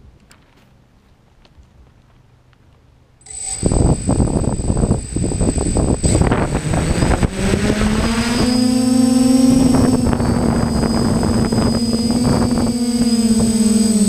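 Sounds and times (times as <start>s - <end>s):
drone motors humming: 3.3s - 14.0s
wind noise on microphone: 3.3s - 14.0s.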